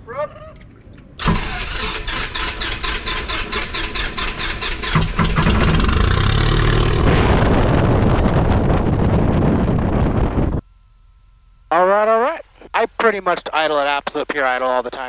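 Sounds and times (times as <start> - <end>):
aircraft piston engine running: 1.2 - 6.2
starter cranking engine: 1.2 - 6.9.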